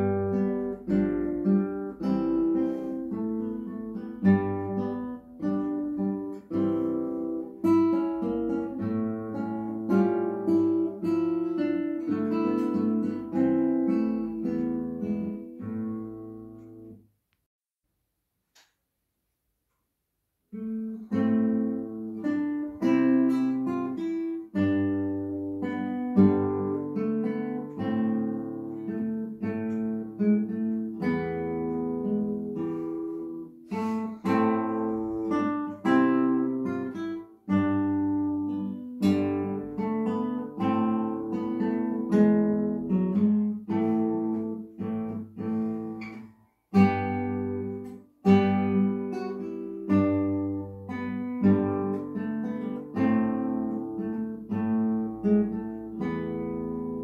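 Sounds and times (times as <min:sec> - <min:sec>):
classical guitar fingerstyle: 0:00.0 - 0:17.0, 0:20.5 - 0:57.0.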